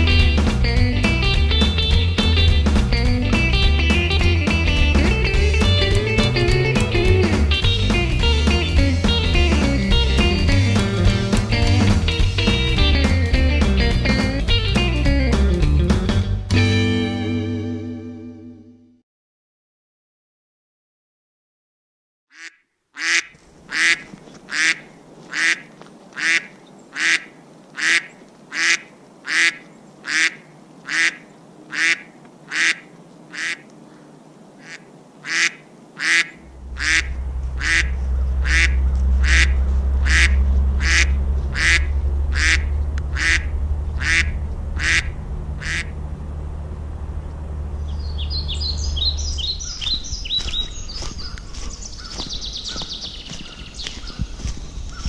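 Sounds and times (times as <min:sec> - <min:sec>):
duck quacking: 0:22.3 - 0:33.7, 0:34.6 - 0:46.0
small birds chirping: 0:22.3 - 0:45.8, 0:47.2 - 0:55.0
low rumble: 0:36.4 - 0:51.7.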